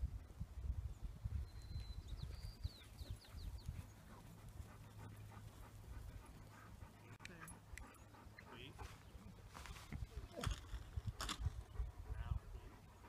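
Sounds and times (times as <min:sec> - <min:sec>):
dog panting: 0:02.8 - 0:10.2, 0:11.0 - 0:13.0.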